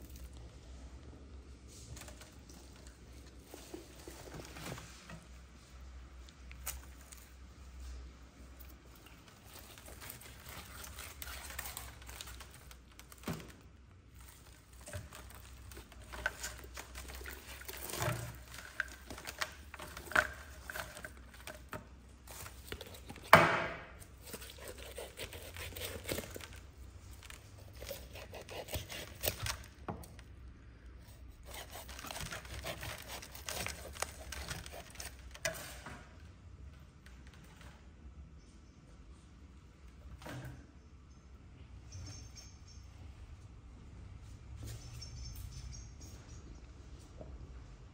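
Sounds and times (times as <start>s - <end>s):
meat tearing: 24.0s - 29.8s, 31.4s - 35.4s
roasted skin crackling: 31.4s - 35.3s.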